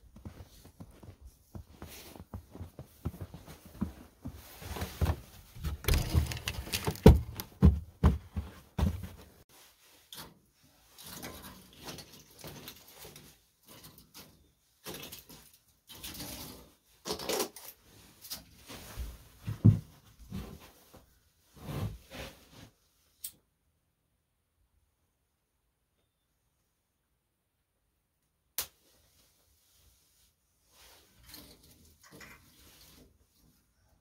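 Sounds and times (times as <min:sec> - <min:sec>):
kindling loaded into wood stove: 0:05.6 - 0:07.6.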